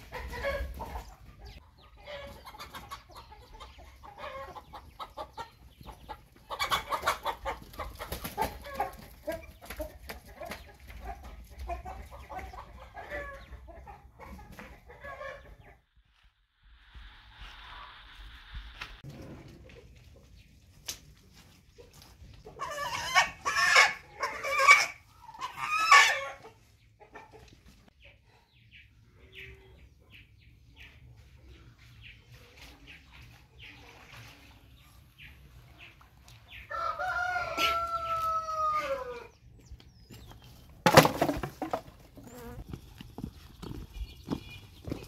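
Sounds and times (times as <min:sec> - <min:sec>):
chicken calling harshly: 0:22.6 - 0:26.4
rooster crowing: 0:36.7 - 0:39.2.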